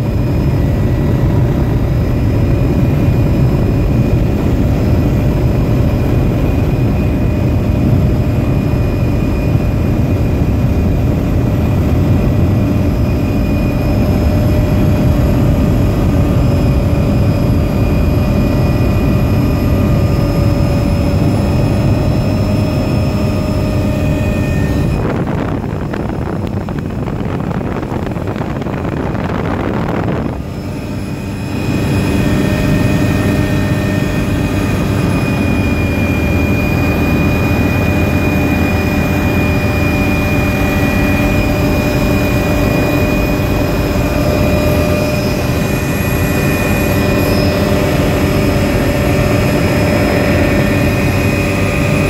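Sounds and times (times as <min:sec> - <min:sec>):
helicopter engine whine and rotor: 0:00.0 - 0:52.0.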